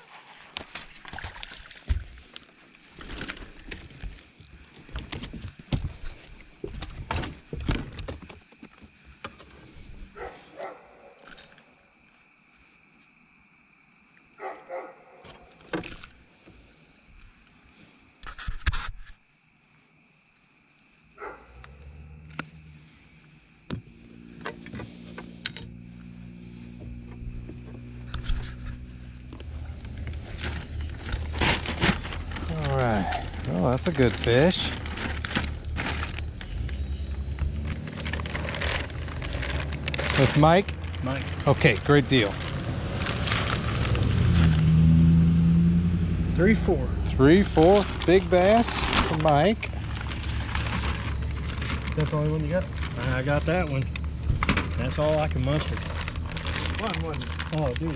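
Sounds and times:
low motor hum: 0:23.8 - 0:33.8, 0:34.8 - 0:57.9.

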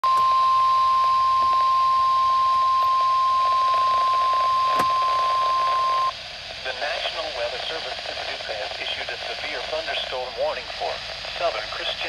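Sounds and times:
radio static hiss: 0:02.6 - 0:12.0.

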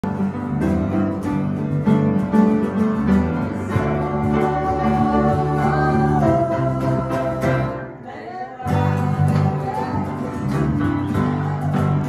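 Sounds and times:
electric bass guitar: 0:00.0 - 0:12.0
piano: 0:00.0 - 0:12.0.

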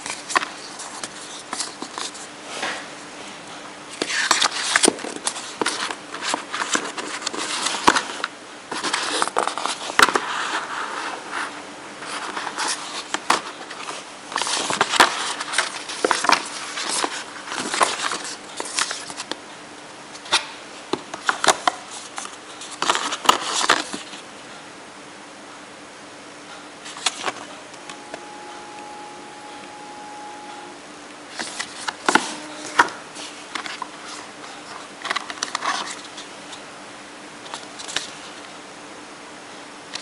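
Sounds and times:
paper and cardboard rustling: 0:00.0 - 0:02.9, 0:04.0 - 0:19.4, 0:21.2 - 0:24.2, 0:33.2 - 0:36.3.

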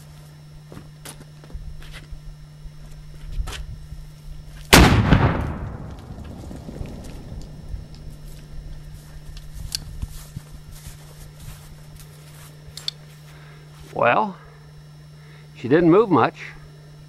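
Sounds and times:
cannon boom: 0:04.7 - 0:08.1.

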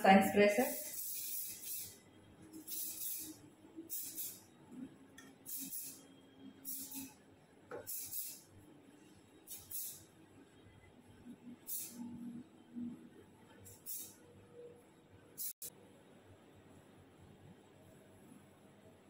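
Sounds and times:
hair spray hissing: 0:00.6 - 0:02.0, 0:02.6 - 0:04.4, 0:05.5 - 0:06.0, 0:06.6 - 0:07.2, 0:07.8 - 0:08.4, 0:09.5 - 0:10.0, 0:11.7 - 0:12.0, 0:13.7 - 0:14.1.

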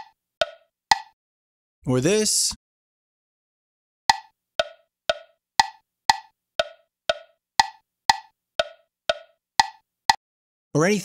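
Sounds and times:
wood block metronome clicks: 0:00.0 - 0:01.2, 0:04.1 - 0:09.8.

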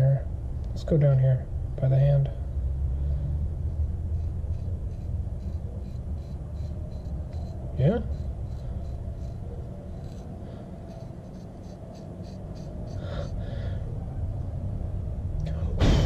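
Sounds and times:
low steady hum: 0:00.0 - 0:16.0
knife blade scraping hair: 0:04.1 - 0:13.4.

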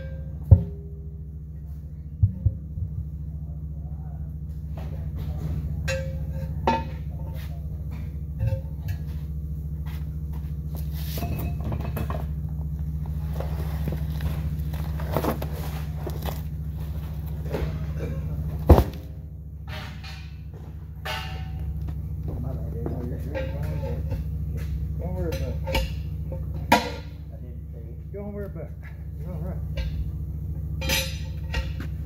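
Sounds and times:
low machine hum: 0:00.0 - 0:32.0
metal knocks and clanks: 0:04.6 - 0:27.6, 0:28.2 - 0:32.0.

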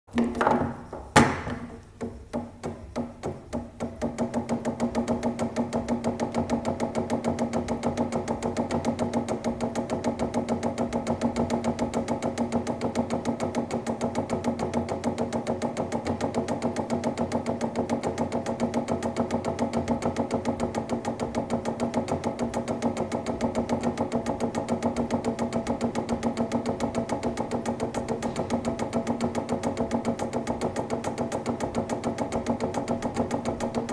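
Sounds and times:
foosball clacking: 0:00.1 - 0:06.7.

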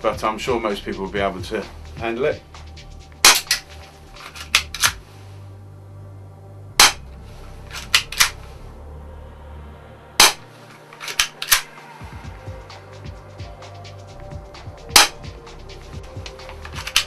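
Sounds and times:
air pistol shot snap: 0:03.2 - 0:03.7, 0:06.8 - 0:07.1, 0:07.8 - 0:08.4, 0:10.2 - 0:11.8, 0:14.9 - 0:15.3
pistol slide racking clicks: 0:04.2 - 0:05.0, 0:07.7 - 0:08.4, 0:10.3 - 0:11.7, 0:16.2 - 0:17.0.

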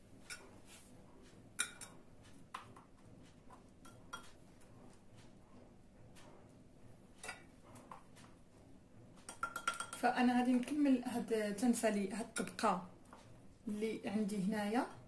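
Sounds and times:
quiet room hum: 0:00.0 - 0:15.0
kitchenware clicks and taps: 0:01.6 - 0:02.9, 0:03.8 - 0:04.4, 0:09.2 - 0:10.0.

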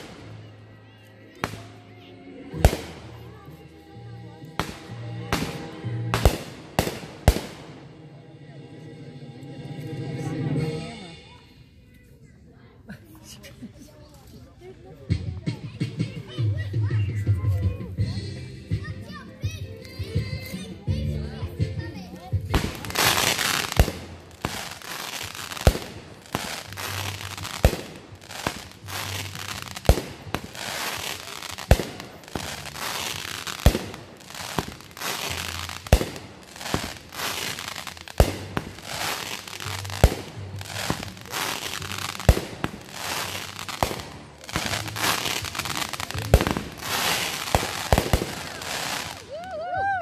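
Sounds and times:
fireworks popping: 0:00.0 - 0:00.4, 0:04.6 - 0:07.8, 0:22.4 - 0:49.3
fireworks crackling: 0:00.0 - 0:00.6, 0:01.3 - 0:01.8, 0:02.5 - 0:03.6, 0:04.5 - 0:08.0, 0:22.1 - 0:49.7.

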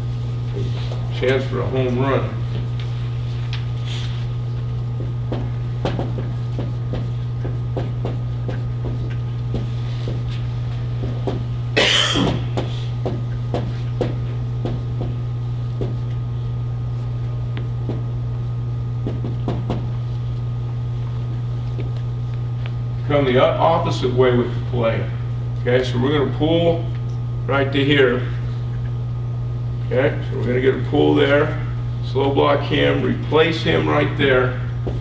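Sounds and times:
steady low hum: 0:00.0 - 0:35.0
marker tapping on whiteboard: 0:05.0 - 0:10.2
person coughing: 0:11.8 - 0:12.4.

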